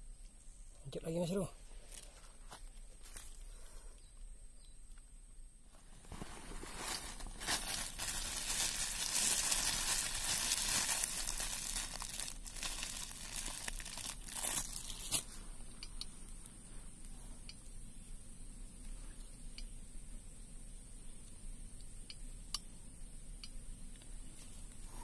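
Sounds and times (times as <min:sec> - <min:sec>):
dense crinkling and rustling: 0:01.7 - 0:03.7, 0:05.7 - 0:15.5
faint ticks: 0:15.7 - 0:17.8, 0:18.8 - 0:19.8.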